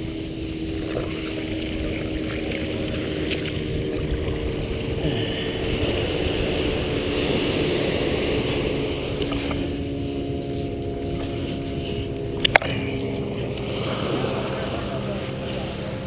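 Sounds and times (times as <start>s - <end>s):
steady low hum: 0.0s - 16.0s
surf washing over sand: 0.0s - 16.0s
wind rumbling on microphone: 0.0s - 16.0s.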